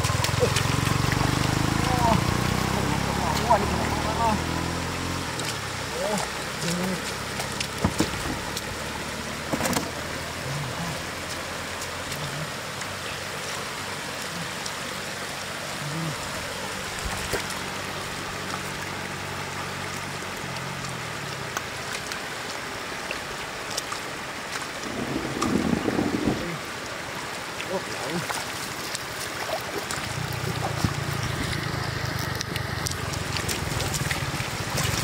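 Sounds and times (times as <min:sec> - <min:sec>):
fish flapping in water: 0:00.0 - 0:03.7, 0:28.2 - 0:35.0
boots wading in water: 0:00.0 - 0:26.4, 0:27.0 - 0:35.0
floodwater running over road: 0:00.0 - 0:35.0.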